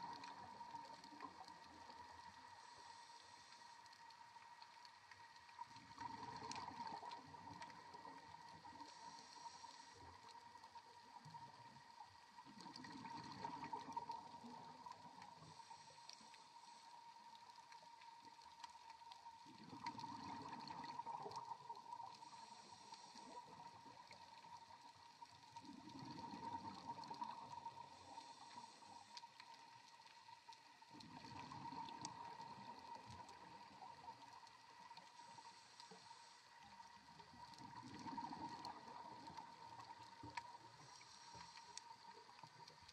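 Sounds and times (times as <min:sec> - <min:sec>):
faint steady hum: 0:00.0 - 0:42.9.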